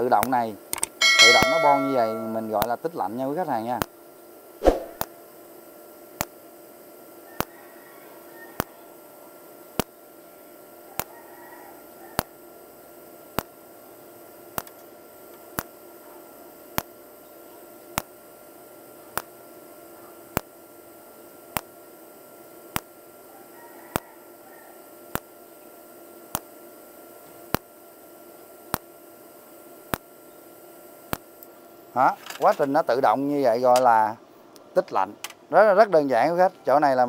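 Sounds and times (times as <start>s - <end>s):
faint steady hum: 0.0s - 37.0s
welder arc pulse ticks: 20.4s - 20.6s, 29.9s - 30.1s.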